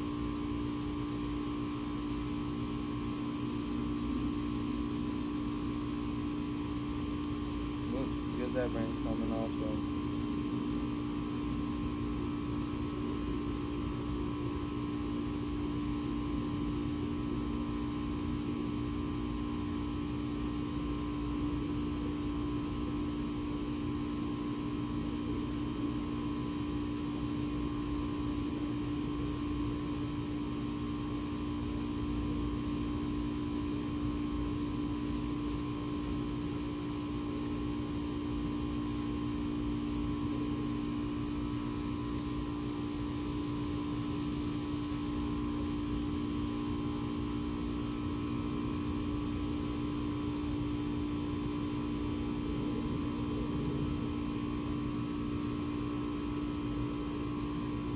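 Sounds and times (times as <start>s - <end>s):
steady tonal hum: 0.0s - 15.8s.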